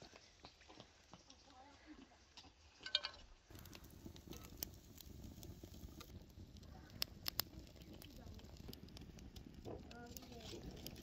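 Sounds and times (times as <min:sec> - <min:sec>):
wood fire crackling: 0:00.0 - 0:11.0
fire popping sharply: 0:03.5 - 0:11.0.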